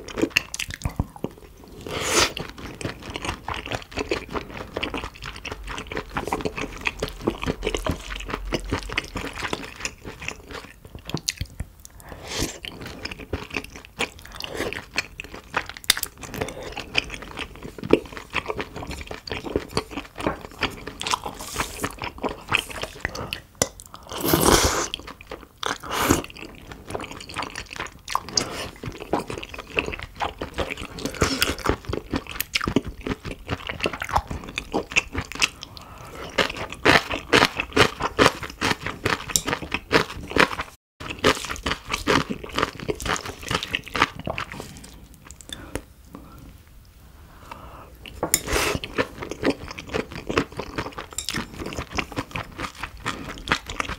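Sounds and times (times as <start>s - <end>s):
close chewing and crunching: 0.0s - 45.9s, 48.0s - 53.9s.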